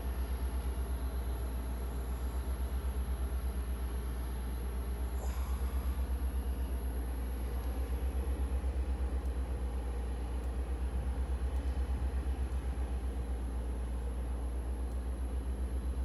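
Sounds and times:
faint high whine: 0.0 - 10.6
pulsing mechanical rumble: 0.0 - 16.0.

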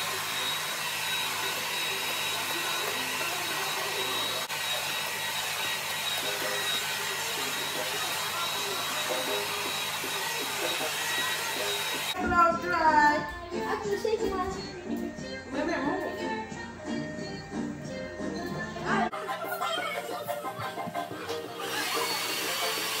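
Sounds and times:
hair dryer blowing: 0.0 - 12.2, 20.6 - 23.0.

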